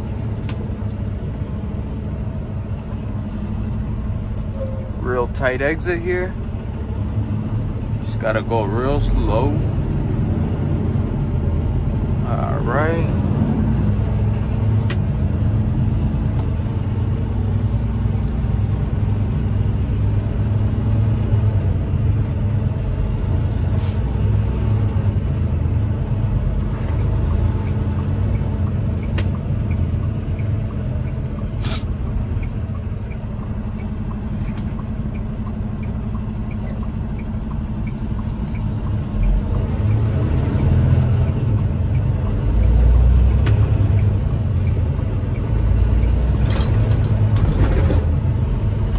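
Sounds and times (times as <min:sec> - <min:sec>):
diesel truck engine rumbling: 0:00.0 - 0:48.9
faint regular ticking: 0:26.7 - 0:46.3.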